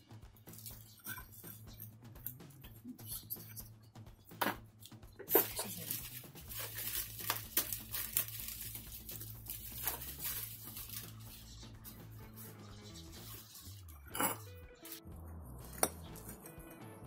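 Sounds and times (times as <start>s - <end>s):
plastic bag rustling and crinkling: 5.3s - 12.6s.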